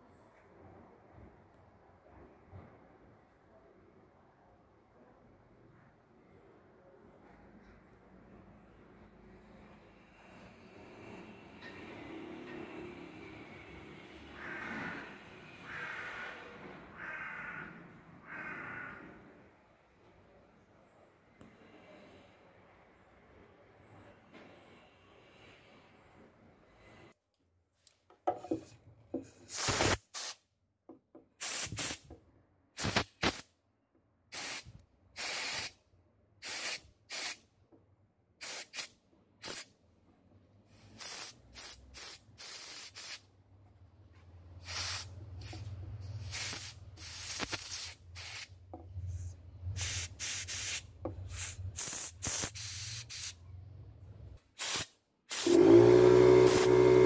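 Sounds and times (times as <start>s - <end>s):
compressed air blasts hissing: 29.5s - 30.4s, 31.4s - 32.1s, 32.8s - 33.5s, 34.3s - 35.8s, 36.4s - 37.4s, 38.4s - 39.7s, 40.7s - 43.2s, 44.6s - 53.4s, 54.5s - 55.6s, 56.4s - 57.0s.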